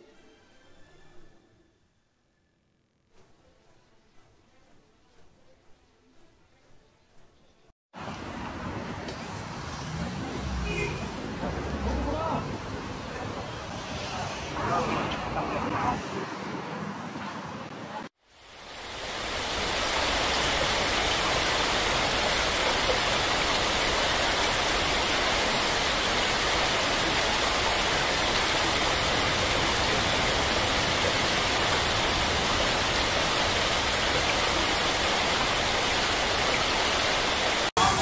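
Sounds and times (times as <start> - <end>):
heavy rain pouring: 18.3 - 38.0.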